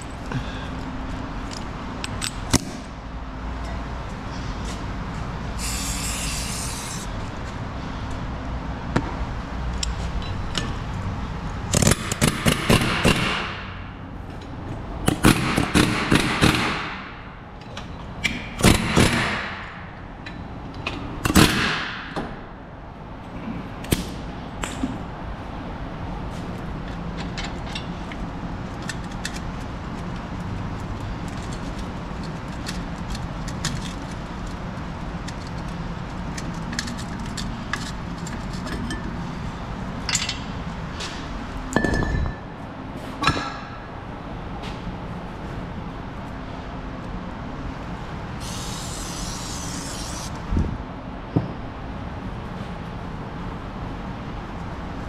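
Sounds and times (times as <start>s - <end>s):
steady low hum: 0.0s - 55.0s
impact wrench hammering: 11.7s - 13.8s, 15.0s - 17.1s.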